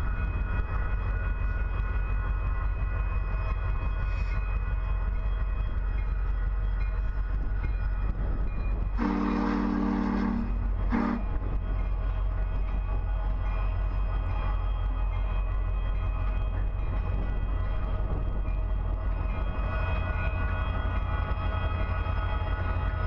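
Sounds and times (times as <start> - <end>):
locomotive rumble: 0.0 - 23.0
train air horn blasts: 9.0 - 11.4.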